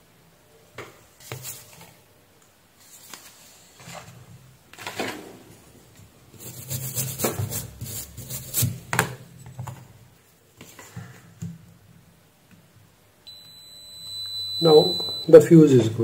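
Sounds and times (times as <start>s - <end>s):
scratchy scrubbing on circuit board: 6.4s - 8.8s
high multimeter beep: 13.3s - 15.5s.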